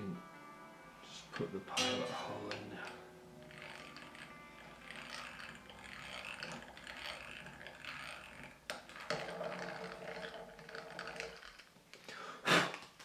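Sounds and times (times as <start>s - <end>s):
hand drill whirring and clicking: 2.8s - 12.1s.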